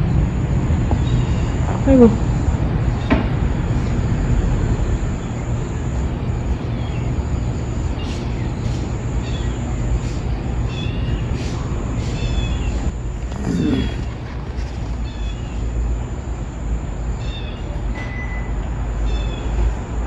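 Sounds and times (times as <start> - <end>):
kitten mewing: 13.3 - 14.2.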